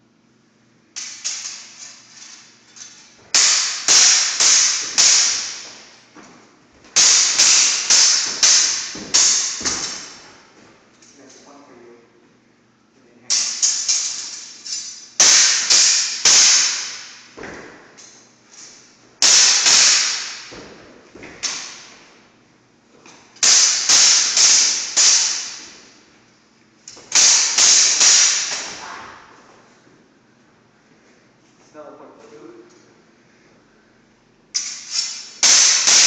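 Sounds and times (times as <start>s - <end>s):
swords clashing: 1.0s - 5.9s, 7.0s - 10.4s, 13.3s - 17.3s, 18.0s - 22.1s, 23.4s - 26.0s, 26.9s - 29.2s, 34.5s - 36.0s.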